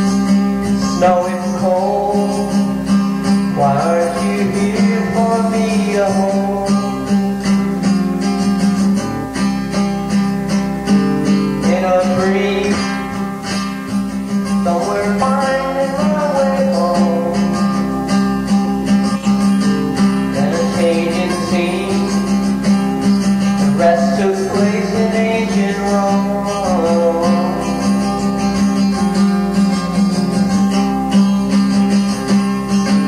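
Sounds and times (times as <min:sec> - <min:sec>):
guitar: 0:00.0 - 0:33.0
person singing: 0:00.8 - 0:09.4, 0:11.2 - 0:13.3, 0:14.5 - 0:18.0, 0:19.4 - 0:30.2.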